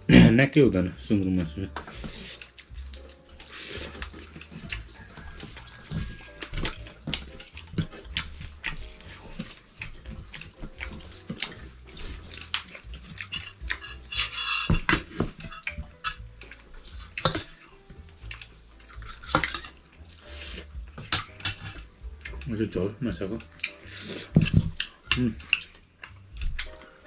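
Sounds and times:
metal dishes and spoon clinking: 0:01.8 - 0:17.6, 0:18.8 - 0:20.4, 0:21.0 - 0:22.5.

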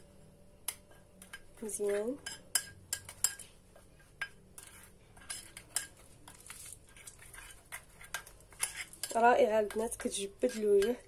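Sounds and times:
metal spoon clinking on ceramic bowl: 0:01.2 - 0:03.5, 0:04.2 - 0:06.7.

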